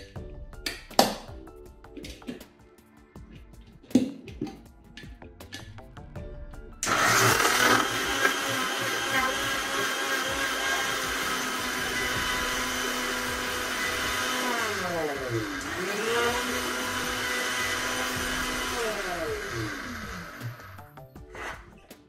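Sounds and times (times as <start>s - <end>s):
mixer grinder motor running: 6.8s - 20.9s.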